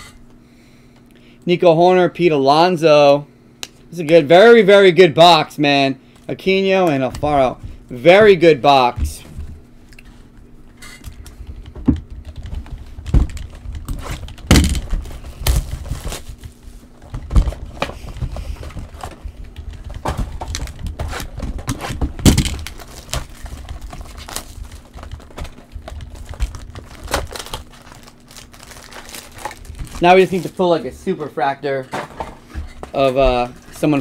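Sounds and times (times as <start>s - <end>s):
cards clicking and rustling: 10.9s - 30.8s
card box knocks: 14.4s - 15.0s, 20.0s - 22.7s.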